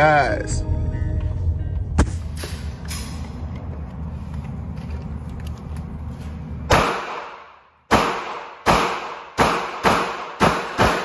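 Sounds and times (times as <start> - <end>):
gunshots with echo: 6.7 - 11.0.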